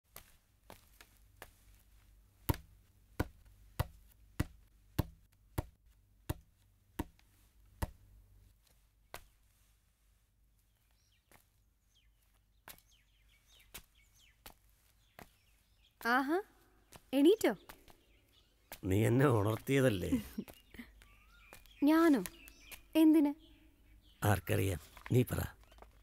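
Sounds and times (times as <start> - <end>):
faint bird chirps: 10.6 - 26.0.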